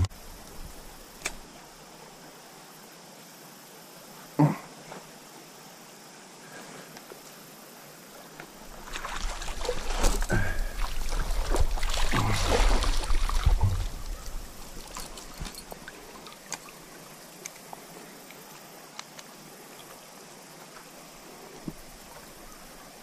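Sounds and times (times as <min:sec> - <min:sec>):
stream trickling: 0:00.0 - 0:23.0
water splashing and sloshing: 0:08.2 - 0:23.0.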